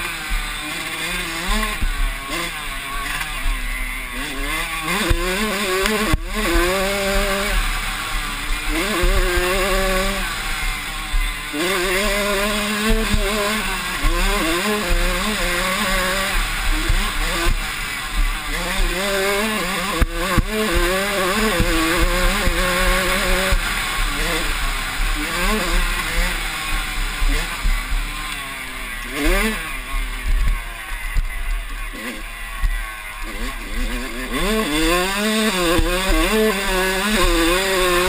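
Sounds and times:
dirt bike engine revving: 0:00.0 - 0:38.0
wind and trail noise: 0:00.0 - 0:38.0.

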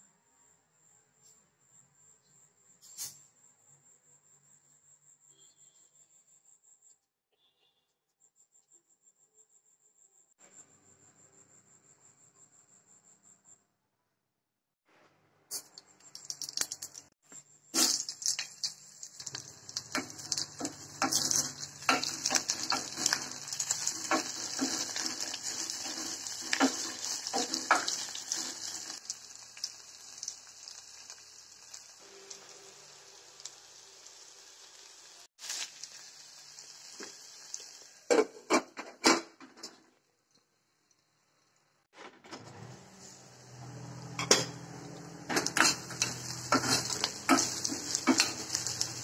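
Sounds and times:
onions sizzling in oil: 0:17.8 - 0:38.5, 0:44.2 - 0:49.0
spatula scraping pot: 0:45.3 - 0:48.8.

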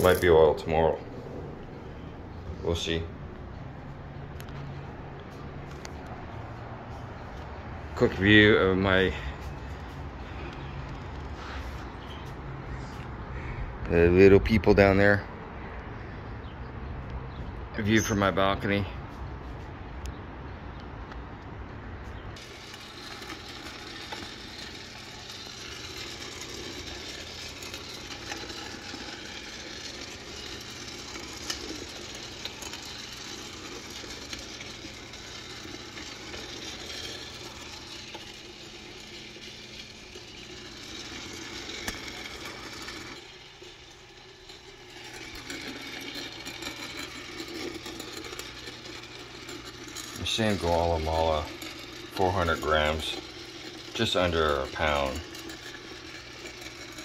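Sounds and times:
roaster drum rattling: 0:00.0 - 0:03.1, 0:22.4 - 0:57.0
coffee roaster motor hum: 0:00.0 - 0:14.7, 0:22.1 - 0:57.0.

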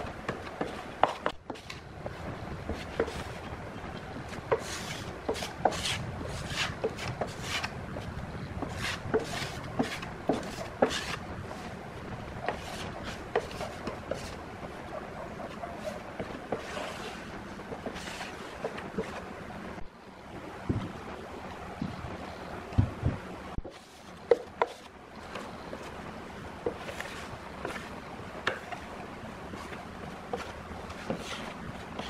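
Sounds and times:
paintbrush scrubbing wood: 0:04.3 - 0:19.3, 0:26.6 - 0:32.0.

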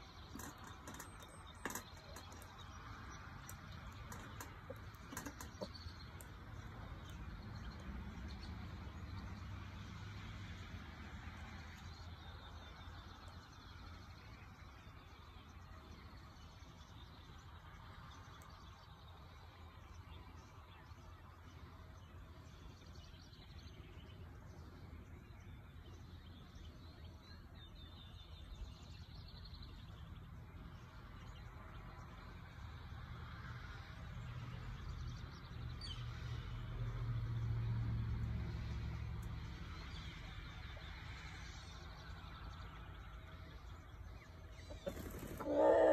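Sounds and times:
birds chirping: 0:00.0 - 0:09.5, 0:38.6 - 0:45.9.

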